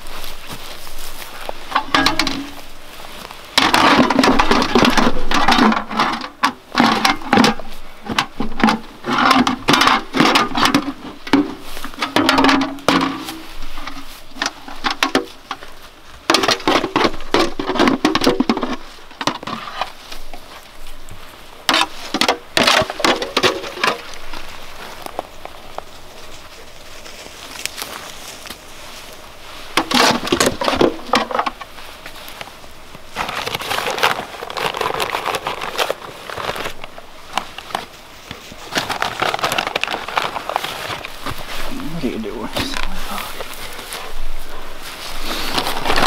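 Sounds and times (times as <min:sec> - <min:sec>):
spade digging in soil: 0:00.0 - 0:20.7, 0:26.5 - 0:46.0
metal bucket clattering: 0:01.6 - 0:02.7, 0:03.6 - 0:15.6, 0:16.3 - 0:20.0, 0:21.7 - 0:24.1, 0:29.8 - 0:31.7.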